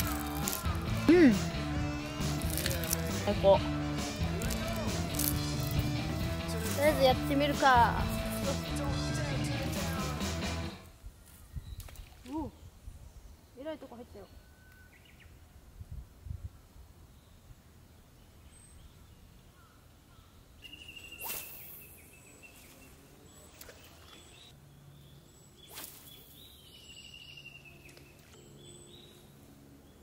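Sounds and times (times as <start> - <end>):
fishing rod swishing through air: 21.1 - 22.0, 25.7 - 26.2.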